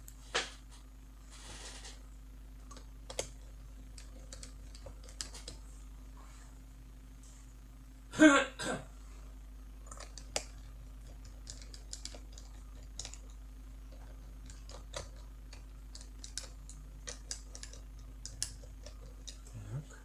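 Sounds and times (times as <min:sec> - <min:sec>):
person clearing throat: 0:08.1 - 0:08.9.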